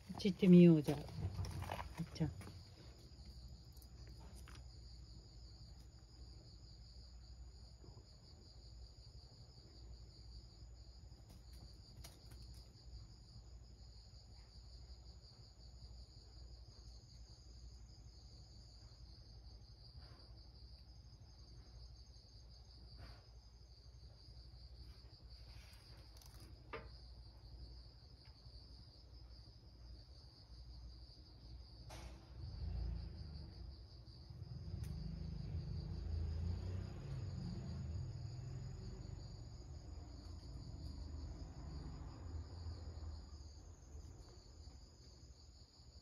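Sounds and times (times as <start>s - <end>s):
insects chirring: 23.6s - 46.0s.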